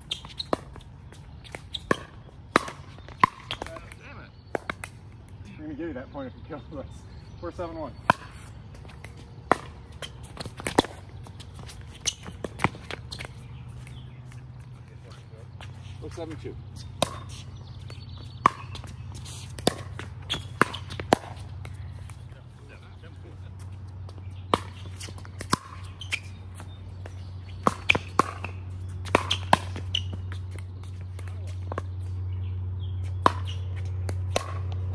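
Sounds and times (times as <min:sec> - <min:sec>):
paddles popping ball: 0:16.9 - 0:22.2, 0:24.5 - 0:31.9.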